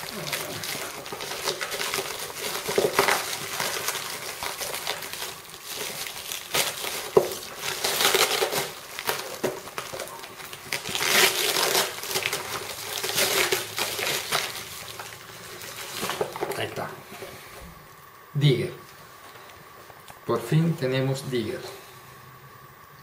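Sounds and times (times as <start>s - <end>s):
packaging crinkling and tearing: 0.0s - 17.4s.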